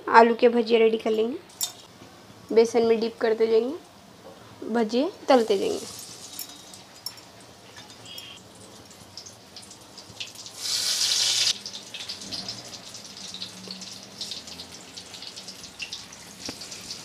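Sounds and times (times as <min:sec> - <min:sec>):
food deep-frying in hot oil: 0:04.8 - 0:17.0
loud rush of sizzling: 0:10.5 - 0:12.9.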